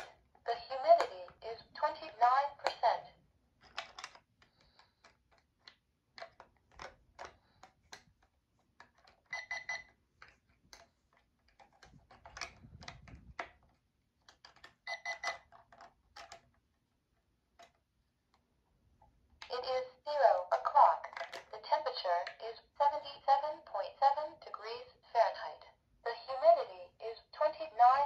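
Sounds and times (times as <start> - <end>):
alarm clock buttons clicking: 0.7 - 3.0, 9.3 - 10.0, 14.8 - 15.4.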